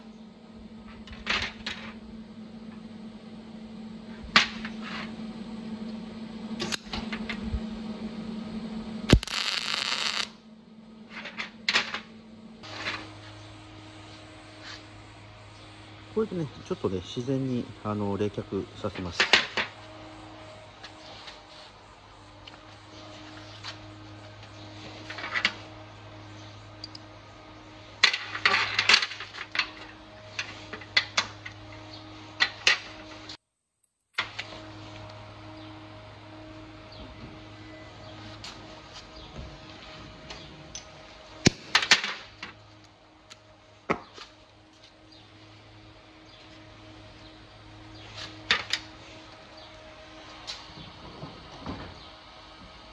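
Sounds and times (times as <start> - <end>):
steady machine hum: 0.0 - 52.9
welding arc crackling: 9.1 - 10.3.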